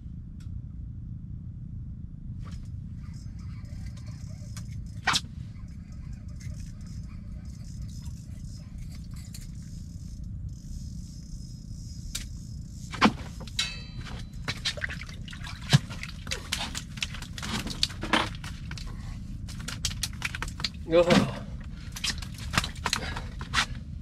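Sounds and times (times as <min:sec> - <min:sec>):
steady low rumble: 0:00.0 - 0:24.0
water splashing and dripping: 0:13.0 - 0:18.9, 0:19.5 - 0:23.4.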